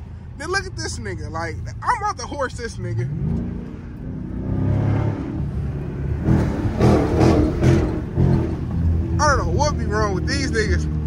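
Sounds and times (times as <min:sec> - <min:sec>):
car engine accelerating hard: 0:03.0 - 0:11.0.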